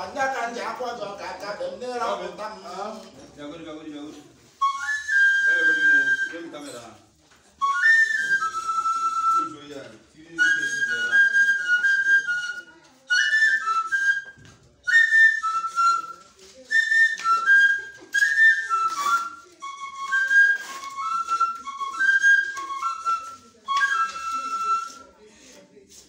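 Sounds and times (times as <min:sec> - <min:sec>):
high whistle-like melody: 0:04.6 - 0:06.7, 0:07.6 - 0:25.1.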